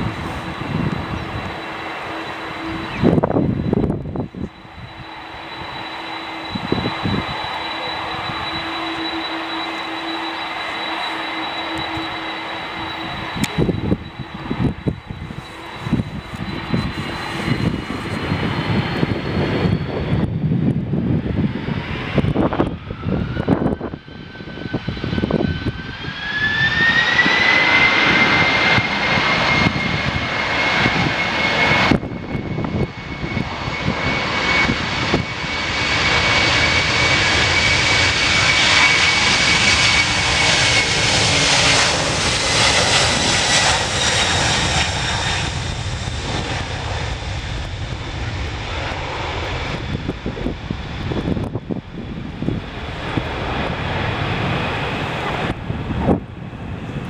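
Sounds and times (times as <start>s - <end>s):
jet engines spooling up: 0.0s - 57.0s.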